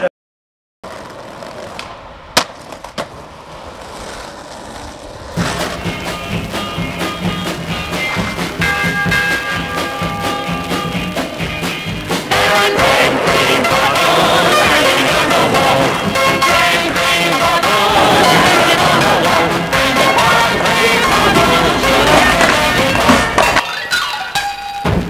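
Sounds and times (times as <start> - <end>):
skateboard wheels rolling on bricks: 0.8 - 25.0
skateboard clack: 0.9 - 25.0
music: 5.4 - 25.0.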